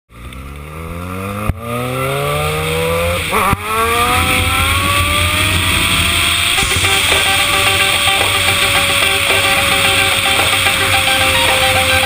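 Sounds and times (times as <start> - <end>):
motorcycle engine accelerating: 0.1 - 12.0
wind noise on microphone: 3.4 - 12.0.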